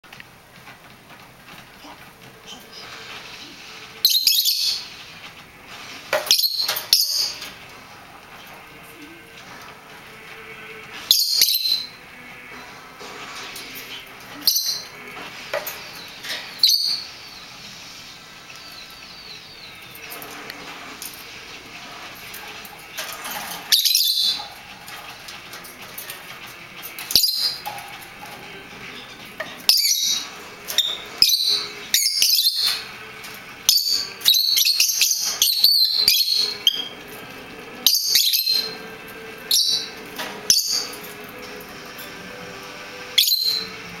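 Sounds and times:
lovebirds chirping: 13.8s - 20.4s, 26.9s - 37.1s.

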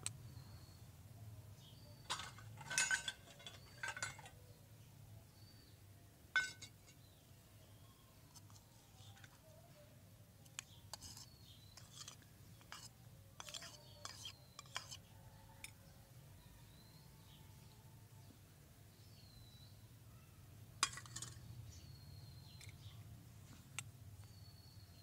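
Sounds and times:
metal spoon clinking on bowl: 2.0s - 4.4s, 6.4s - 7.0s, 10.6s - 15.0s, 20.8s - 21.4s.

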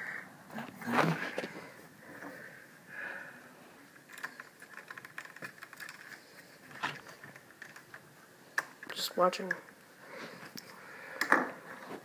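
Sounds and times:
plastic clicks and rattles: 4.0s - 8.0s.

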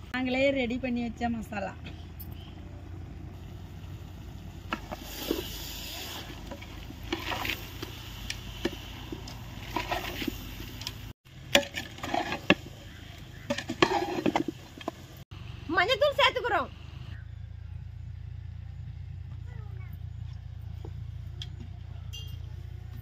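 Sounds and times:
utensil scraping a bowl: 11.6s - 14.6s.

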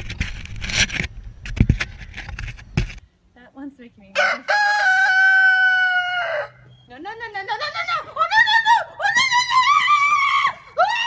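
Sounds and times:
wind rumbling on microphone: 0.0s - 3.0s.

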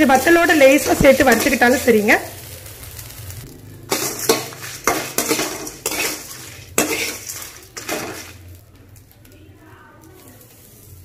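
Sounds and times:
metal spatula scraping a pan: 0.0s - 2.1s, 3.8s - 8.6s.

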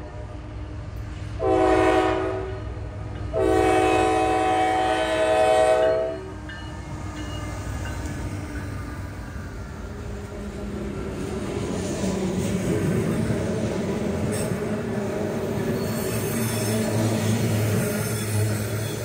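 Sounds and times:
train rumbling past: 0.0s - 19.0s
locomotive air horn blasts: 1.4s - 2.7s, 3.3s - 6.3s.

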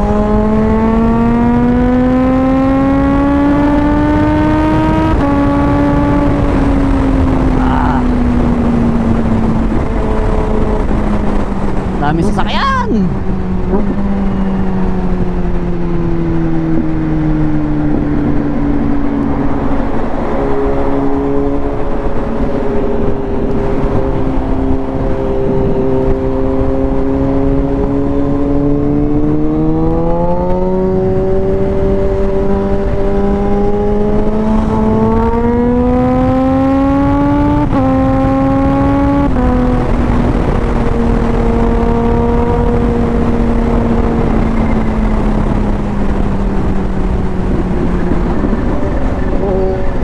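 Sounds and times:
motorcycle engine at speed: 0.0s - 50.0s
wind rushing: 0.0s - 50.0s.

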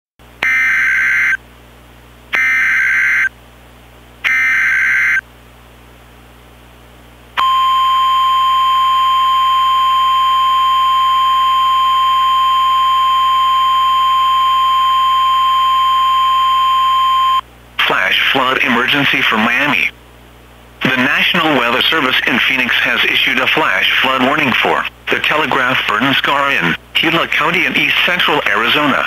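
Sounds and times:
screeching digital data tones: 4.3s - 5.2s
single-tone attention signal: 7.4s - 17.4s.

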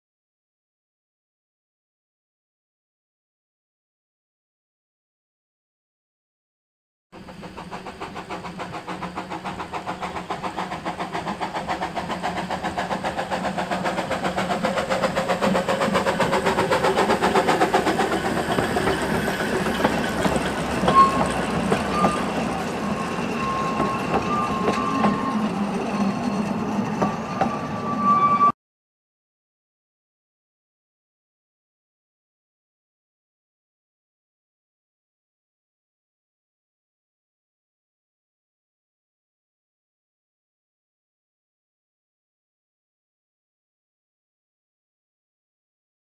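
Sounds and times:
steam locomotive chuffing: 7.2s - 28.1s
train coaches rumbling by: 7.2s - 28.5s
train wheels squealing: 7.2s - 28.6s.

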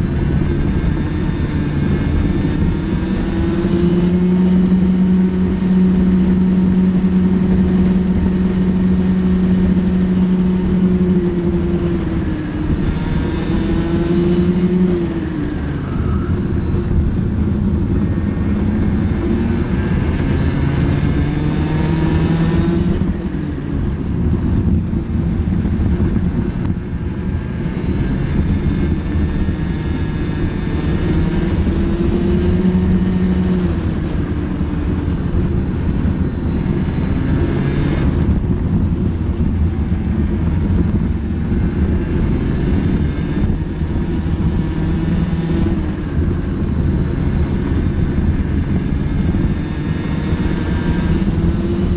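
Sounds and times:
kart engine at race pace: 0.0s - 51.9s.

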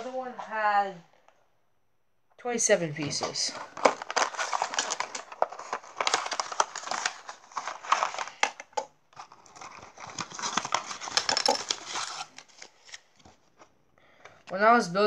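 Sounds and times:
cardboard box rustling: 3.2s - 8.3s
plastic bricks clicking: 11.0s - 11.9s.

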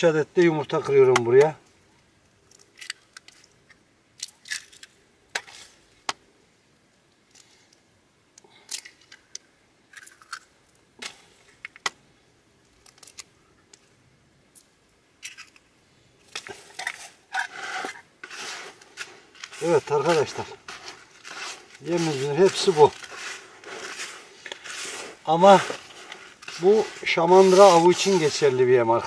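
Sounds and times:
rustling and scraping of bait mix: 12.6s - 29.0s.

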